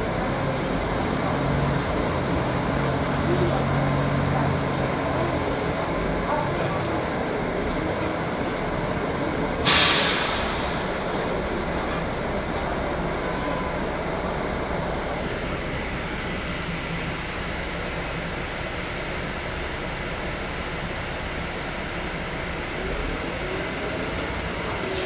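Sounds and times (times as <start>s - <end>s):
bus engine running: 0.0s - 25.0s
compressed air hiss: 9.6s - 11.0s.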